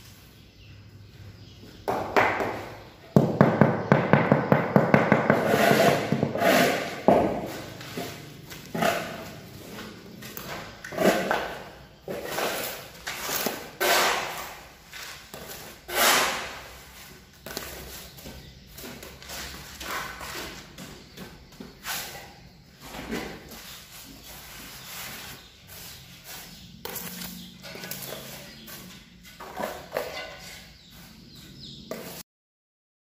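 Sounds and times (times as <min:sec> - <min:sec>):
trowel scraping cement mortar: 0:05.2 - 0:09.4, 0:10.8 - 0:17.1.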